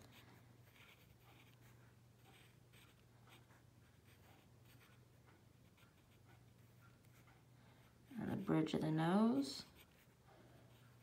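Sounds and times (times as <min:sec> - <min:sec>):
pencil scratching on paper: 0:00.0 - 0:07.4, 0:09.6 - 0:11.0.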